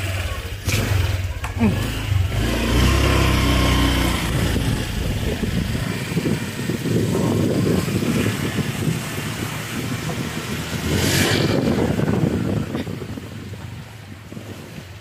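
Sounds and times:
small motorcycle engine: 0.0 - 13.0
road and wind noise: 0.0 - 15.0.

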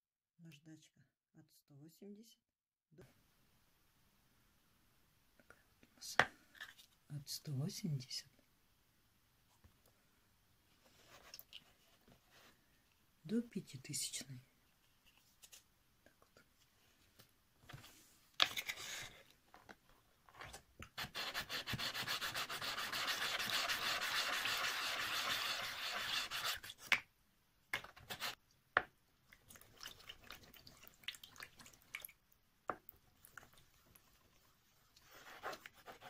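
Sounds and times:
wet sanding scraping strokes: 21.0 - 26.7.

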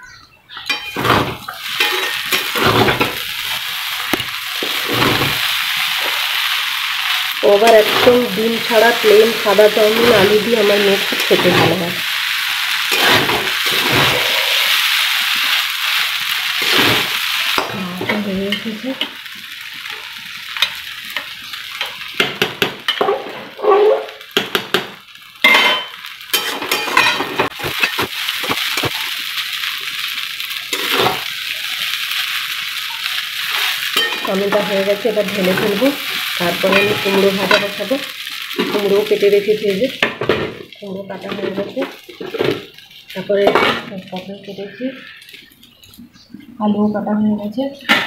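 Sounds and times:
metal spatula clinking and scraping: 0.6 - 3.2, 25.4 - 28.9, 33.5 - 35.8, 36.6 - 37.8
noodles sizzling in oil: 0.6 - 48.0.

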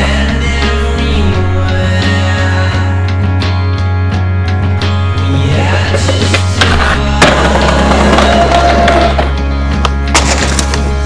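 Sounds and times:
music soundtrack: 0.0 - 11.0.

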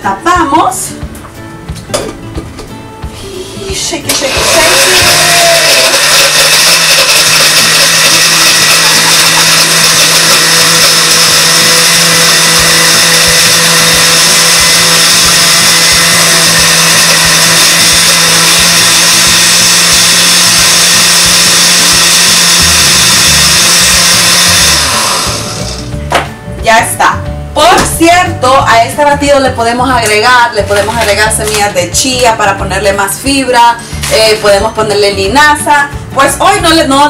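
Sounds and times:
blender running: 3.8 - 26.0, 30.0 - 31.8, 33.8 - 34.6.

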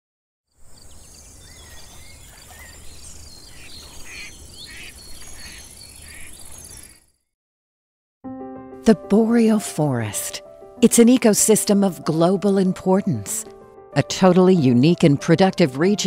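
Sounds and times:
bird chirps: 0.6 - 7.3.

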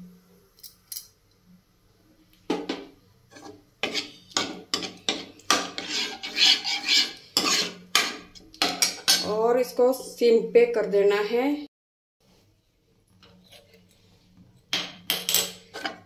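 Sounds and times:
ladle scraping in a pan: 3.3 - 9.1, 13.2 - 14.1, 15.6 - 16.0.

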